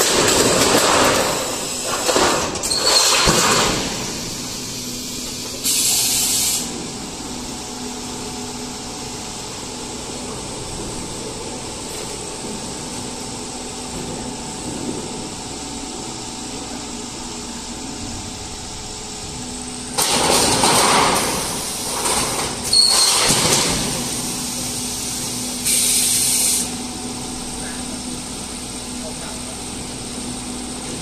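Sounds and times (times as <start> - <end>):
metal sheet dropping bursts: 0.0 - 4.1, 20.0 - 24.1
roll forming machine humming: 0.0 - 31.0.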